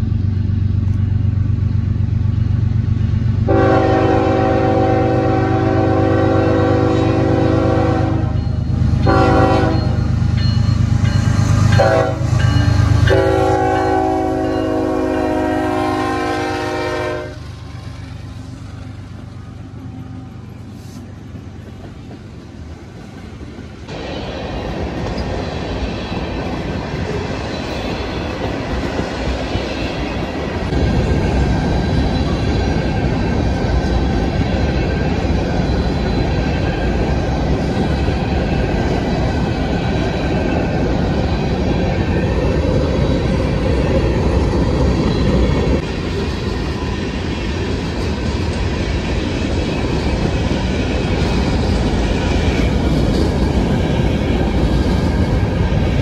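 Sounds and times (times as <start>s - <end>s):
locomotive engines droning: 0.0s - 56.0s
train wheels on rails: 0.0s - 56.0s
train air horn blasts: 3.5s - 8.4s, 9.0s - 10.0s, 11.8s - 17.5s.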